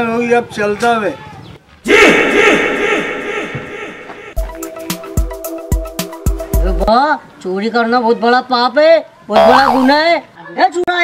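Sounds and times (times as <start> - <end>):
sharp percussion hits: 2.0 - 6.3
held chord with thumping beats: 2.4 - 6.9.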